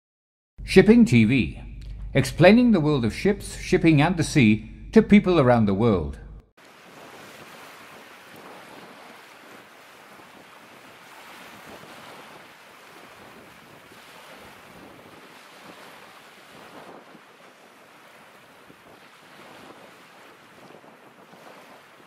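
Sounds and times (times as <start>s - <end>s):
faint water wash: 6.6s - 22.0s
wind noise on microphone: 13.1s - 17.4s.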